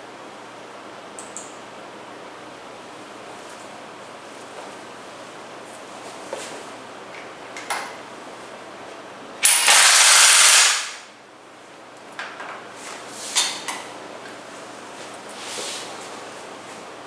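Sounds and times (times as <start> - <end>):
impact wrench hammering: 9.4 - 11.0.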